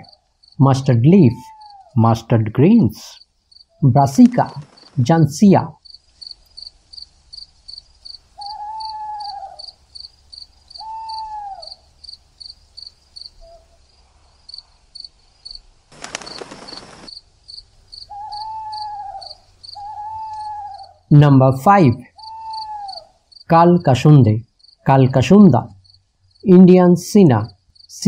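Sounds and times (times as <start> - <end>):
crickets chirping: 0.0 - 28.0
owl-like hooting call: 1.2 - 2.0, 8.3 - 9.8, 10.7 - 11.9, 13.4 - 13.8, 18.0 - 21.2, 21.8 - 23.3.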